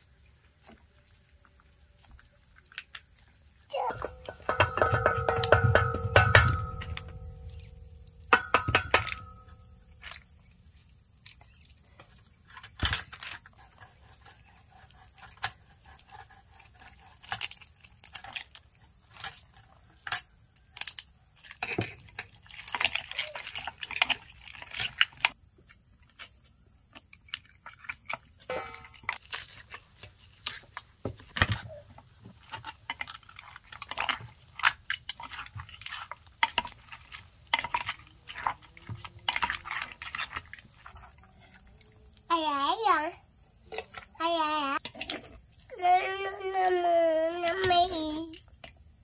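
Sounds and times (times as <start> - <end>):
handling noise: 3.7 - 13.8.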